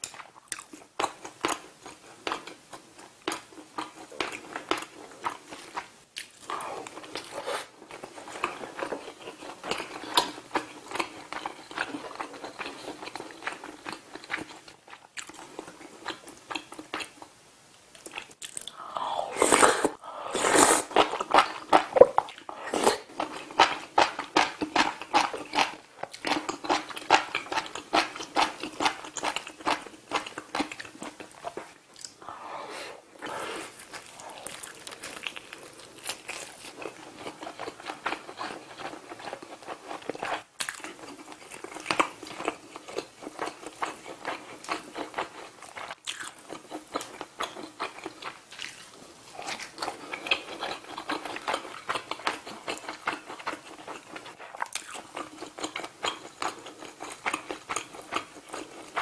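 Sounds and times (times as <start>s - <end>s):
chewing: 0.0s - 17.3s, 18.0s - 32.3s, 33.2s - 59.0s
noodles slurped: 19.1s - 21.1s.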